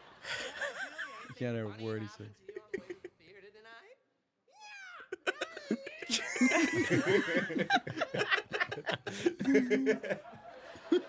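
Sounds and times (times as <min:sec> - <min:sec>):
group of people laughing: 0:00.0 - 0:01.4, 0:05.1 - 0:11.0.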